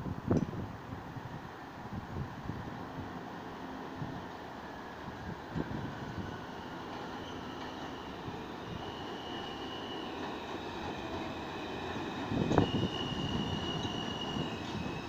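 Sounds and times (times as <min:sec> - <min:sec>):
subway train rumbling: 0:00.0 - 0:15.0
wheels squealing on rails: 0:04.6 - 0:15.0.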